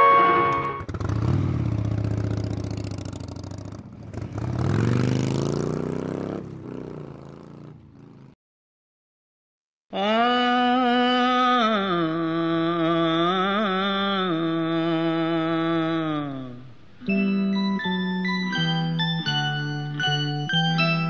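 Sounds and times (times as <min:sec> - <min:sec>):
motorcycle engine revving: 0:00.3 - 0:08.4.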